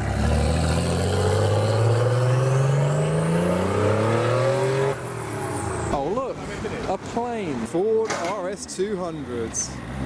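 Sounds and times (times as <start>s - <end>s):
sports car accelerating hard: 0.0s - 5.0s.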